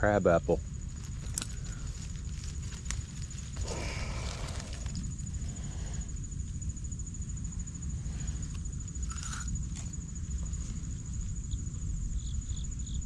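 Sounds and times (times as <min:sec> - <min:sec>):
high insect trill: 0:00.0 - 0:13.0
crunch of apple bitten: 0:08.5 - 0:09.9.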